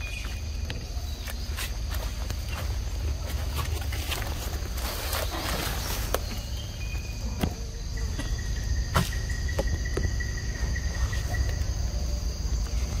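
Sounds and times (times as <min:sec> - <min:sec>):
rustles in dry leaves: 0:00.0 - 0:07.4
high insect drone: 0:00.0 - 0:13.0.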